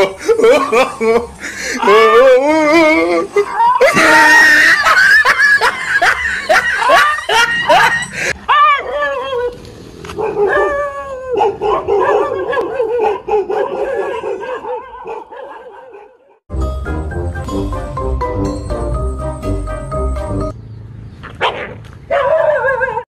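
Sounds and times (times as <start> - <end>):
dog yelping: 10.2 - 16.2, 21.2 - 23.0.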